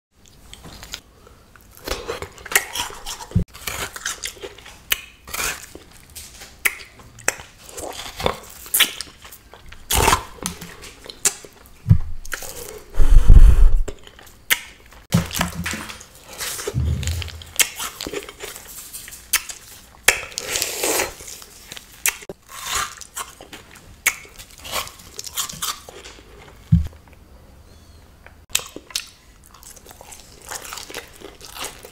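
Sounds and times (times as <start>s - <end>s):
crunching and chewing pastry: 0.2s - 12.9s, 17.8s - 27.2s, 28.5s - 31.9s
loud low thud: 16.7s - 17.7s.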